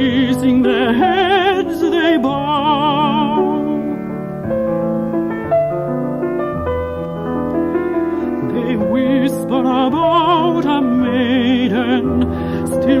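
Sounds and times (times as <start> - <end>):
classical singing with vibrato: 0.0 - 5.1, 8.0 - 13.0
piano accompaniment: 0.0 - 13.0.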